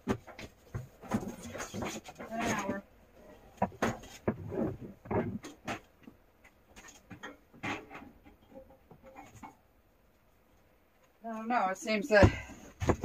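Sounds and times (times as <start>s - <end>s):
rustling: 0.0s - 13.0s
knocks and clicks of handling: 3.5s - 9.6s, 12.2s - 13.0s.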